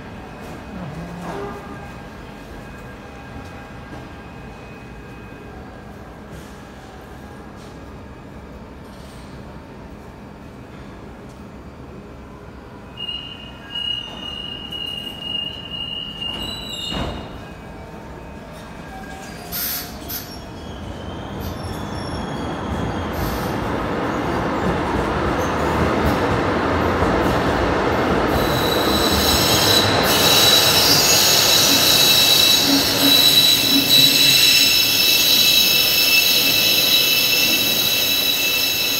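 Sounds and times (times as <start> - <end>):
train rumbling: 0.0 - 4.3, 18.6 - 38.9
high squeal of train: 0.0 - 38.9
high-pitched wheel squeal: 28.4 - 38.9.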